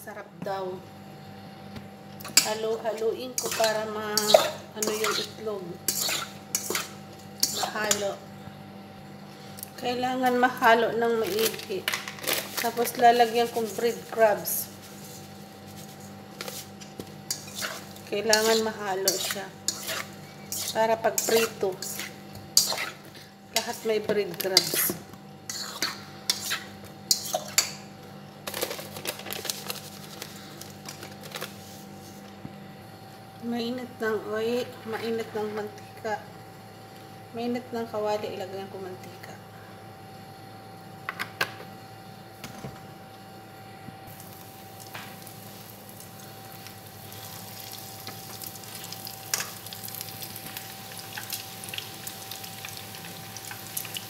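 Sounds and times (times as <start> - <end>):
food sizzling in hot oil: 3.4 - 8.1, 17.2 - 23.9, 44.1 - 54.0.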